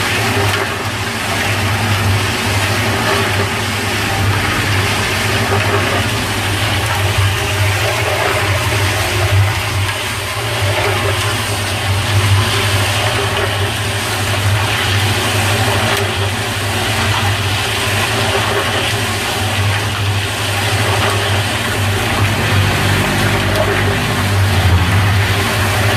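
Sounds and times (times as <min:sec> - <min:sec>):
concrete mixer motor humming: 0:00.0 - 0:25.9.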